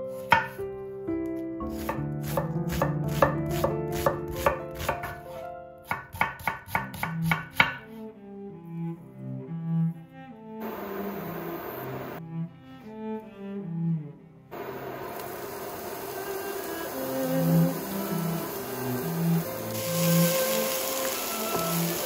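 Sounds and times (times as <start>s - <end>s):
knife chopping on wooden board: 0.2s - 0.6s, 1.6s - 7.8s.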